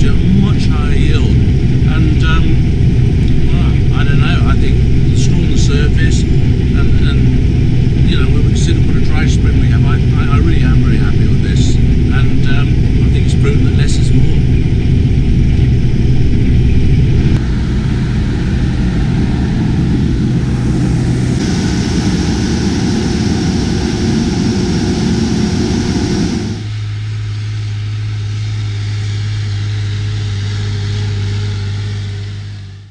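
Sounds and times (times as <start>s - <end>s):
combine harvester engine and machinery: 0.0s - 32.8s
tractor engine drone: 0.0s - 32.9s.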